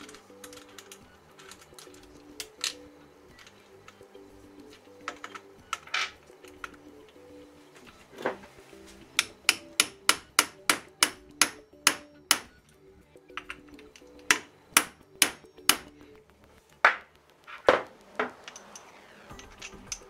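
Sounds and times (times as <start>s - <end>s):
faint background music: 0.0s - 20.0s
hammer striking metal socket: 9.2s - 12.6s.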